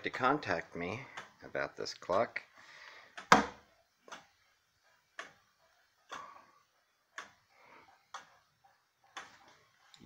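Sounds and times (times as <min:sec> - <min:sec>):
clock ticking: 0:03.1 - 0:10.0.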